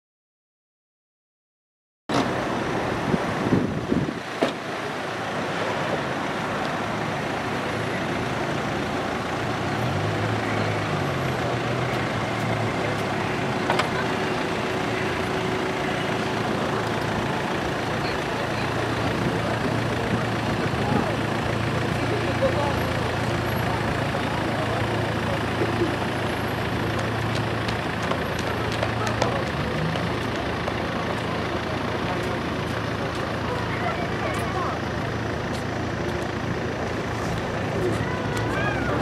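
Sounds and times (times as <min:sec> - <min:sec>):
cars driving along road: 0:02.1 - 0:39.0
low engine hum: 0:02.1 - 0:39.0.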